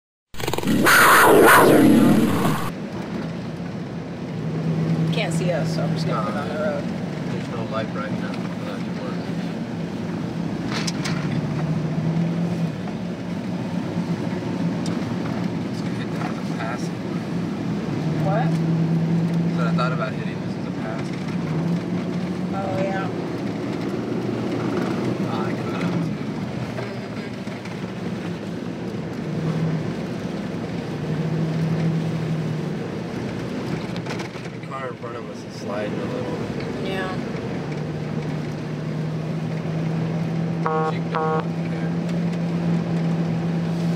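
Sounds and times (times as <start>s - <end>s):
car engine and road drone: 0.3s - 43.9s
low hum: 0.4s - 2.7s.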